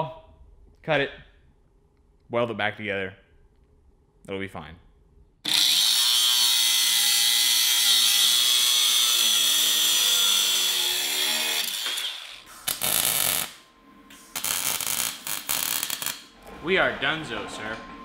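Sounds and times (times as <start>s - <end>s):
angle grinder cutting steel: 5.5s - 13.6s, 14.4s - 16.3s
welding crackling: 11.7s - 13.6s, 14.3s - 16.3s.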